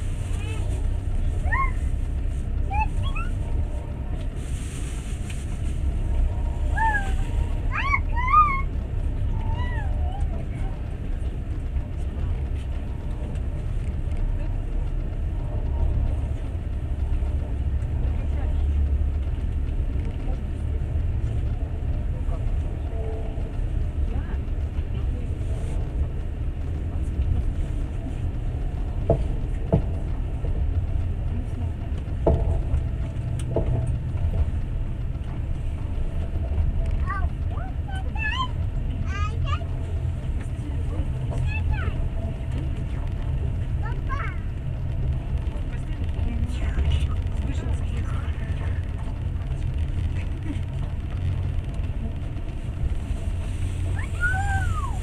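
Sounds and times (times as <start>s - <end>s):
train wheels rumbling on rails: 0.0s - 55.0s
wheels knocking over rail joints: 28.3s - 55.0s.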